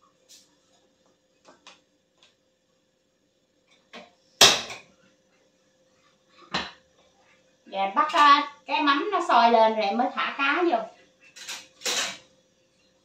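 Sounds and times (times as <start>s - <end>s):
sharp knock of kitchenware: 4.4s - 4.8s.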